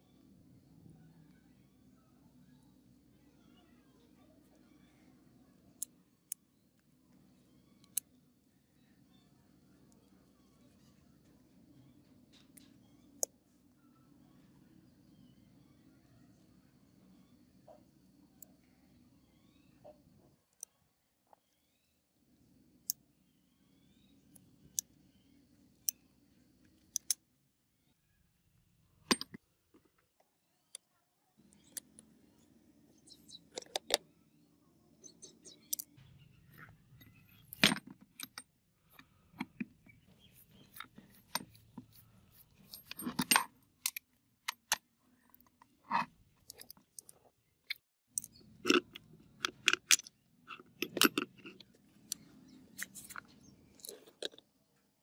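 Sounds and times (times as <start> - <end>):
metal gun parts clinking: 40.7 - 44.0.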